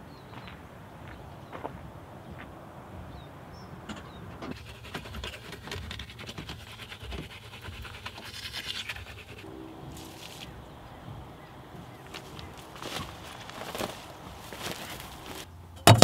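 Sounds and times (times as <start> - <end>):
toothbrush scrubbing teeth: 4.5 - 10.5.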